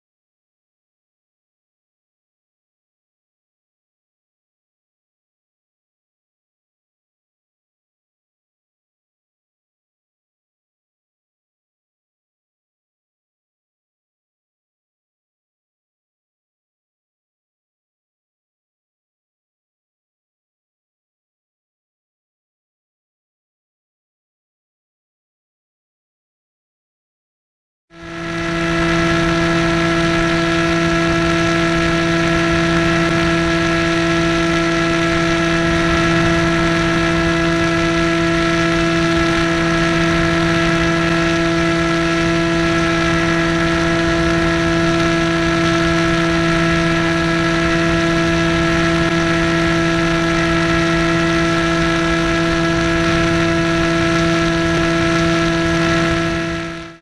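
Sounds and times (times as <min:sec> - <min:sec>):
electric motor propeller whirring: 0:28.0 - 0:57.0.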